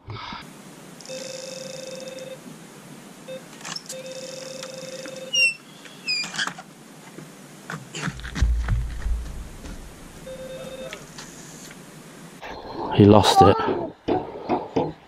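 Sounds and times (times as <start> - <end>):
low rumble: 8.3 - 10.4
electronic bite alarm tone: 10.2 - 11.0.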